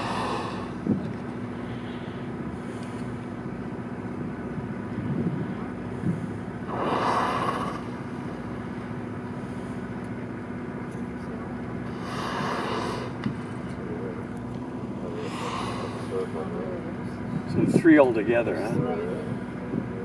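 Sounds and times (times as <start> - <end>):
whale blowing: 0.0 - 3.0, 5.4 - 8.8, 11.9 - 13.4
boat engine idling: 0.0 - 20.0.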